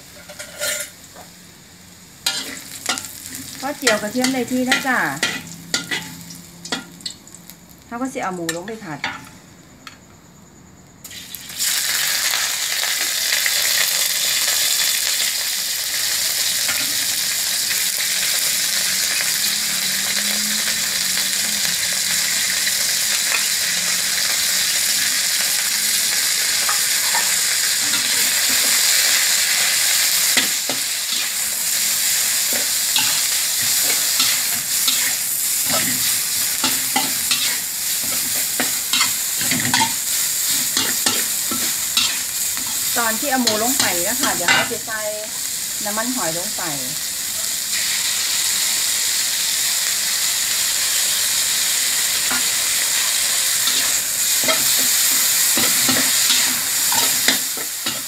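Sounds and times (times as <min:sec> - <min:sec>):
metal spatula scraping wok: 0:00.0 - 0:01.0, 0:02.2 - 0:07.0, 0:26.5 - 0:44.9, 0:52.3 - 0:58.0
meat sizzling in a wok: 0:00.0 - 0:10.1, 0:10.8 - 0:58.0.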